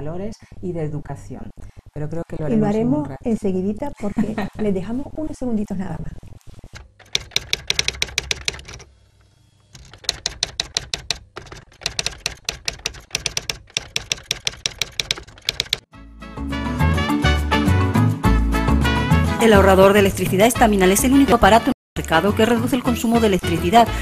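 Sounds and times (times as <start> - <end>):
typewriter keystrokes: 6.8 - 8.9, 9.8 - 15.9.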